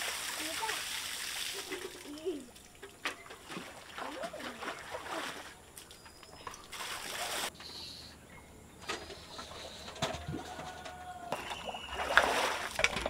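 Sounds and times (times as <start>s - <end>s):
water splashing in bucket: 0.0s - 7.5s, 11.3s - 13.0s.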